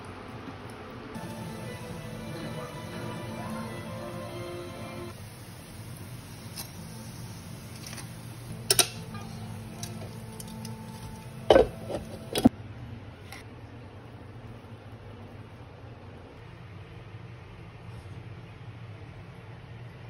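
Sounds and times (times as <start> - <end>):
oil frying hiss: 1.2 - 12.5
metal tongs clacking on pot: 7.8 - 12.5.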